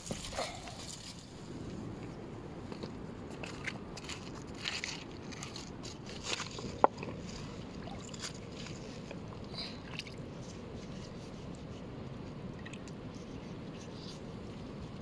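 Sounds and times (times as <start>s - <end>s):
water lapping and sloshing: 3.3s - 14.5s.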